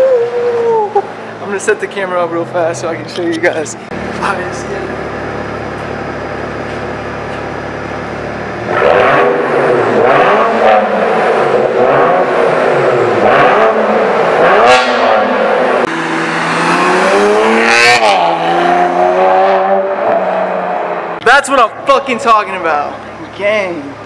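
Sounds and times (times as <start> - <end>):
car driving: 0.0 - 24.0
car engine idling and revving: 0.0 - 24.0.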